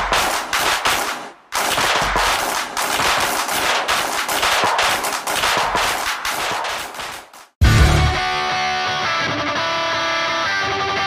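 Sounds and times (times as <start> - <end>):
firecracker strip cracking: 0.0 - 7.6.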